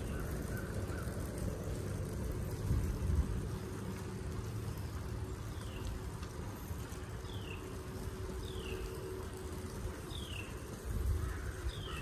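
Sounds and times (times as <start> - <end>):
wind rumble on microphone: 0.0 - 4.5, 9.9 - 12.0
faint steady hum: 0.0 - 12.0.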